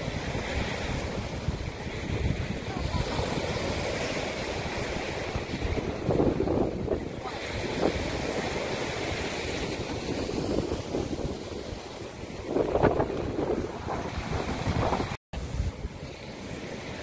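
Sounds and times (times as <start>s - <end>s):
ocean surf washing on beach: 0.0s - 17.0s
wind buffeting microphone: 0.0s - 17.0s.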